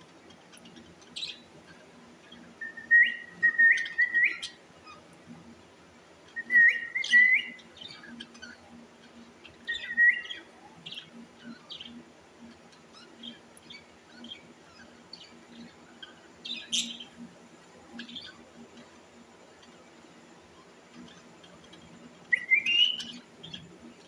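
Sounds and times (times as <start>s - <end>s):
soft scattered bird chirps: 0.0s - 24.0s
parakeets whistling chirps: 2.3s - 5.0s, 6.3s - 8.6s, 9.5s - 12.0s, 16.4s - 17.2s, 22.2s - 23.6s.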